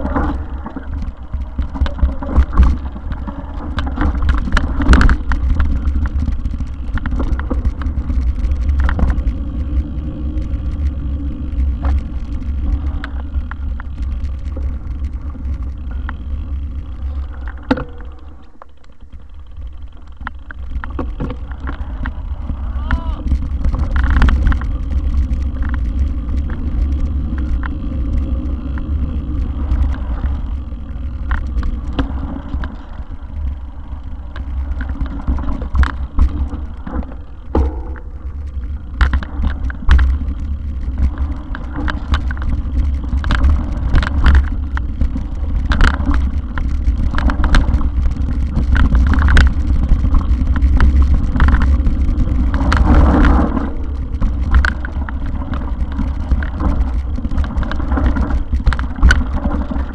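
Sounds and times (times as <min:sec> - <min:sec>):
bike rattles and knocks: 0:00.0 - 0:59.9
wind and vibration rumble: 0:00.0 - 0:59.9.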